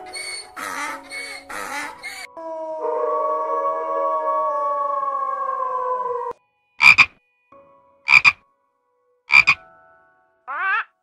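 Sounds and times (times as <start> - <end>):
wolf howling: 0.9 - 6.3.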